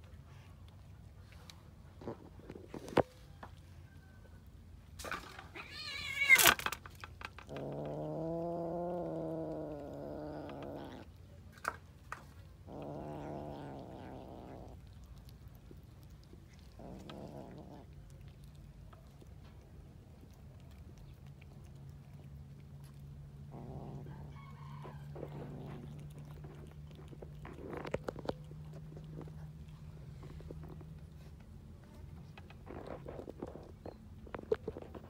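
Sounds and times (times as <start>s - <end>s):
high-pitched cat cry: 5.6s - 6.6s
cat growling: 7.3s - 11.3s, 12.2s - 35.0s.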